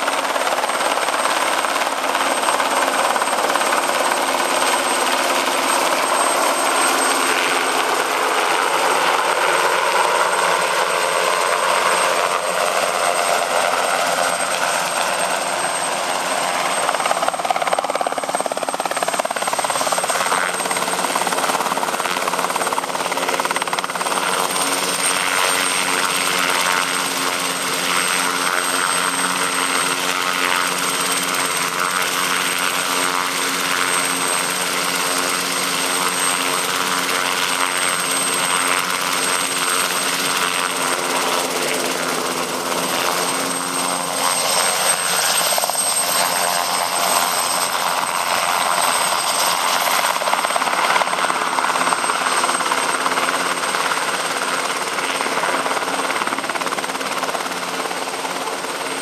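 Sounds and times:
helicopter engine and rotor: 0.0s - 59.0s.

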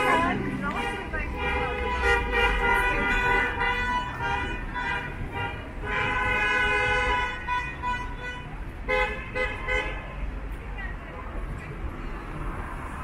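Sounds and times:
car horns honking: 0.0s - 10.3s.

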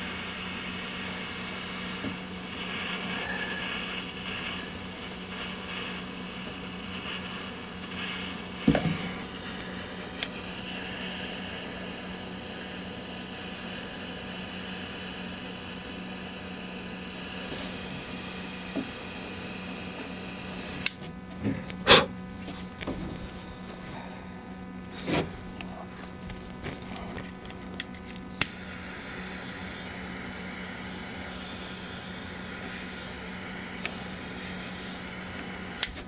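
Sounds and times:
gas torch hissing: 0.0s - 24.0s, 24.9s - 36.0s
torch click: 0.7s - 12.6s, 17.4s - 21.1s, 26.7s - 36.0s.

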